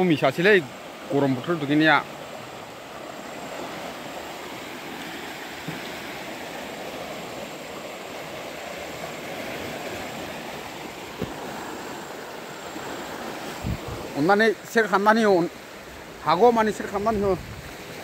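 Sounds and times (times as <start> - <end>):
floodwater rushing: 0.0 - 18.0
soft knocks: 11.1 - 11.4.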